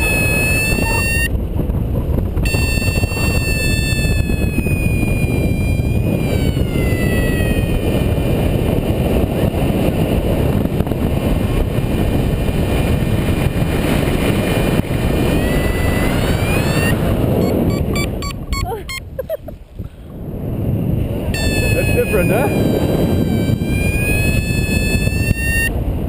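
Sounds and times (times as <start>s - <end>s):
high continuous tone: 0.0s - 1.3s, 2.4s - 8.1s, 15.1s - 19.4s, 21.4s - 25.7s
wind buffeting microphone: 0.0s - 26.0s.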